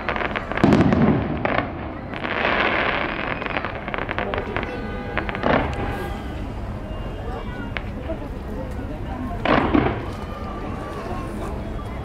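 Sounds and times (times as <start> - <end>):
firework rushing burst: 0.0 - 6.8
fireworks crackling: 0.0 - 12.0.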